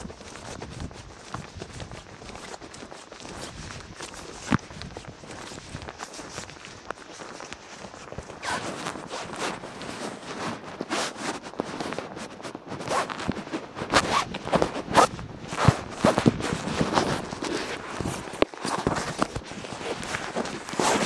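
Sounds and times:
footsteps on damp pavement: 0.0 - 11.9.

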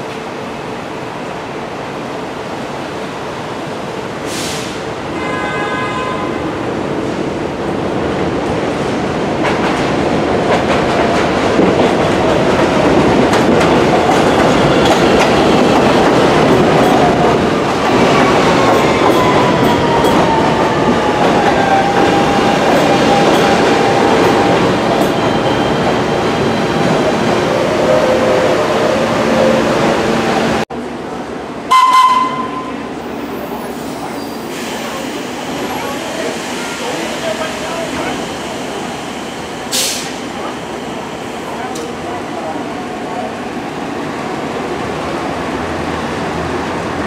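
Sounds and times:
falling train whine: 13.8 - 42.5.

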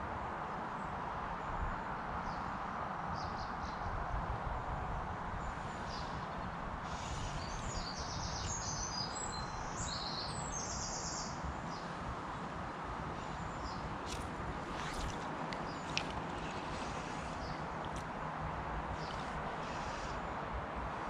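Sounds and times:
rushing background noise: 11.4 - 21.0.

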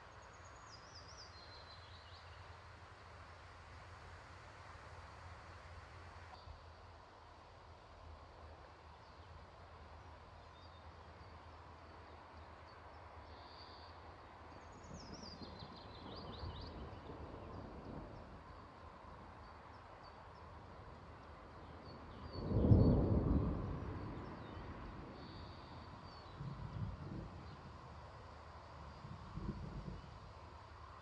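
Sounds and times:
thunder rumble: 22.2 - 27.8.

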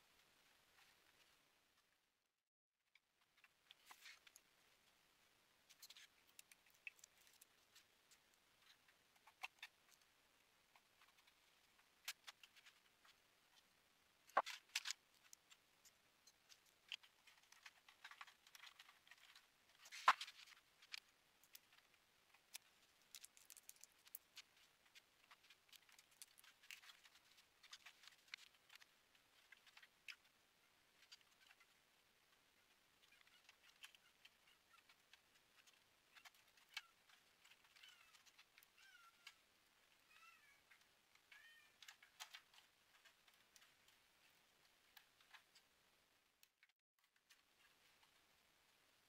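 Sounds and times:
clicks and rustles of handling parts: 14.3 - 30.4, 31.0 - 40.0, 40.6 - 45.7.

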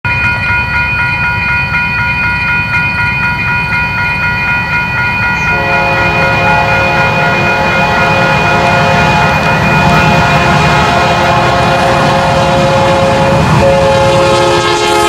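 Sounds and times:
high pulsing ringing tones: 0.1 - 15.0
locomotive rumble: 2.7 - 15.0
train air horn chord: 5.5 - 15.0.

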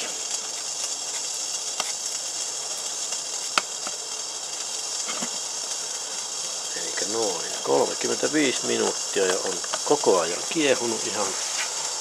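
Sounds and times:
water boiling with high hiss: 0.0 - 12.0
sharp ticks: 8.8 - 10.0.

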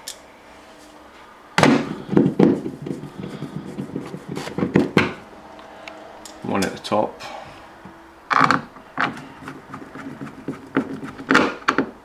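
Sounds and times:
clicks and knocks on hard plastic: 1.6 - 5.2, 8.3 - 12.0.

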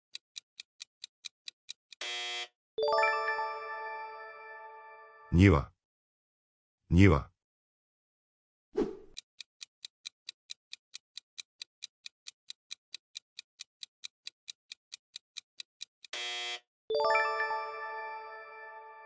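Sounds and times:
clock ticking: 0.1 - 2.1, 9.1 - 16.2.

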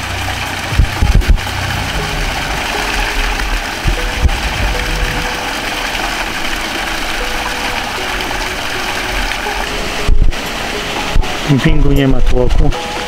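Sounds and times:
stream water splashing over water wheel: 0.0 - 13.0
low thump: 0.7 - 5.2.

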